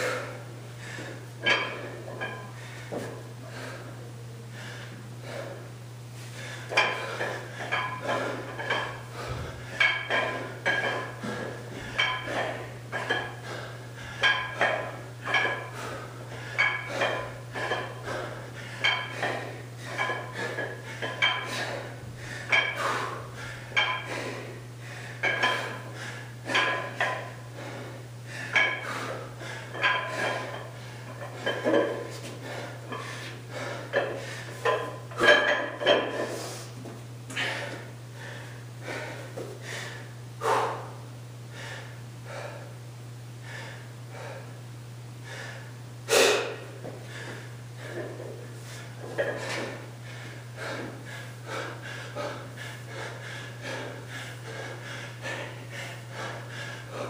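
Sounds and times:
weight plates clanking: 1.4 - 2.6, 6.7 - 24.4, 25.2 - 27.7, 28.5 - 36.4, 49.0 - 49.8.

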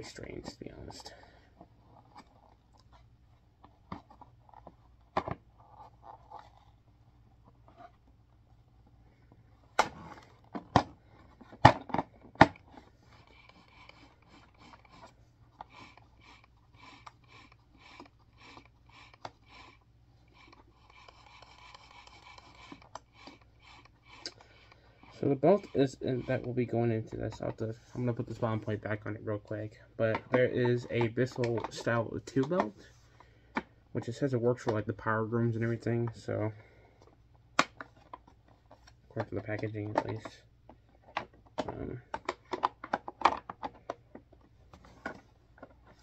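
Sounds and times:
plastic parts clicking: 9.7 - 27.6, 30.0 - 33.7, 37.0 - 46.0.

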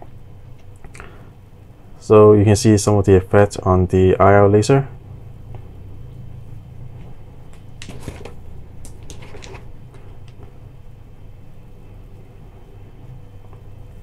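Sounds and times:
low steady hum: 0.0 - 14.0
handling clicks and knocks: 7.5 - 10.4.

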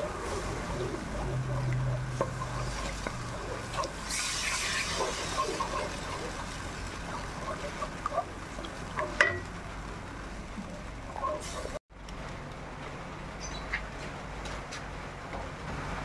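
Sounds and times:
wooden spatula scraping a pan: 0.0 - 6.5
thick sauce bubbling: 0.0 - 11.8.

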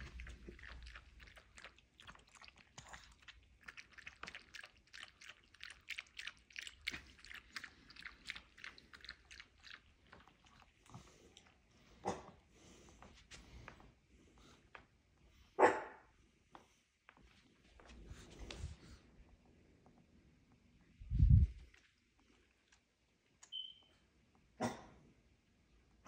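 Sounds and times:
dog lapping water: 0.0 - 12.3.

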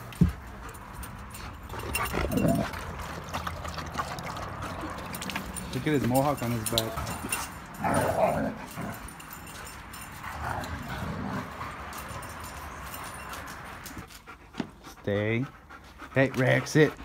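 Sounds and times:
dogs growling: 1.4 - 5.6, 6.6 - 9.5, 10.1 - 13.2.

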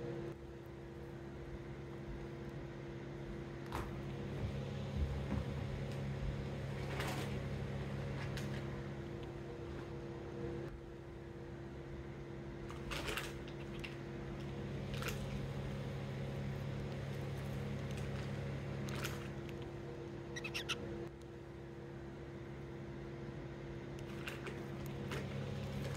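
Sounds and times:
steady mechanical hum: 0.0 - 25.9
bird beak nibbling perch: 20.4 - 20.8.

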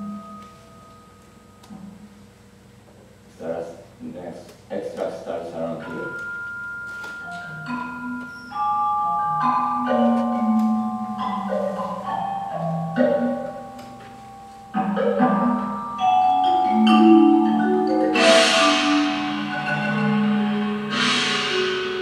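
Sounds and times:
mallet percussion music: 0.0 - 2.1, 5.6 - 22.0
cymbal crash: 18.1 - 22.0.

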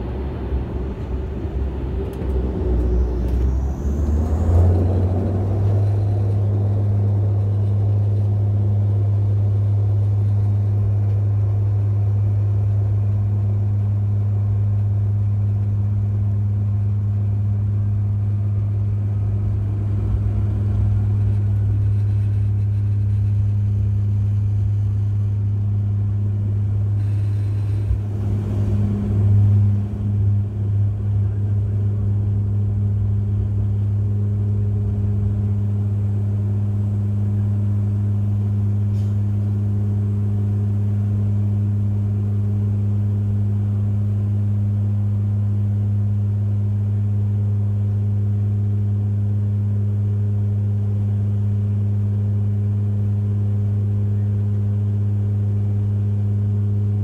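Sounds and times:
turboprop cabin drone: 0.0 - 57.0
rushing noise: 27.0 - 31.2.

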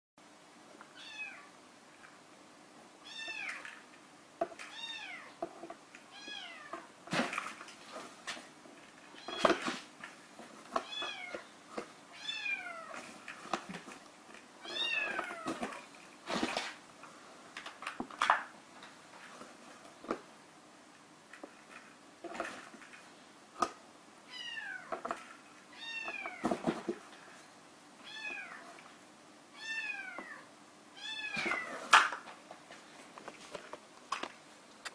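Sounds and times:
kitten moving in cardboard box: 14.6 - 16.8.

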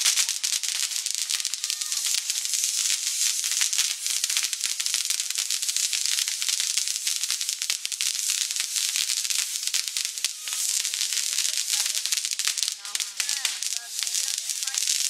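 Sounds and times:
fireworks hissing and crackling: 0.0 - 15.0.

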